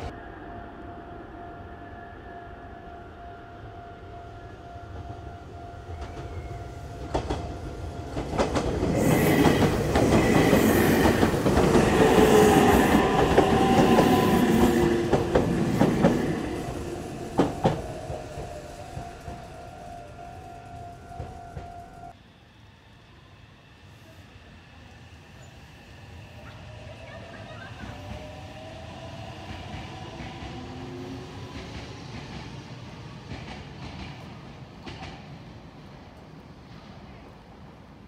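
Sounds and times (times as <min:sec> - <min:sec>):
electric train passing: 0:00.0 - 0:38.0
rail joint clacks: 0:05.8 - 0:22.1, 0:33.3 - 0:35.4.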